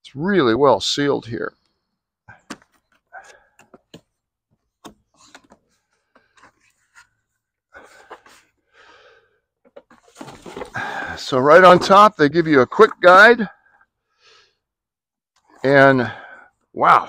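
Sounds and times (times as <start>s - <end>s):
cardboard flaps rustling: 9.7s - 12.1s.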